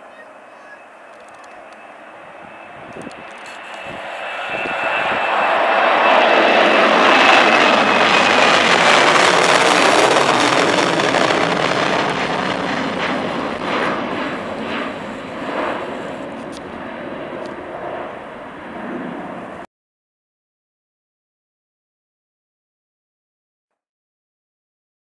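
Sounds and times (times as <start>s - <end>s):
jet engines with high whine: 0.0s - 19.7s.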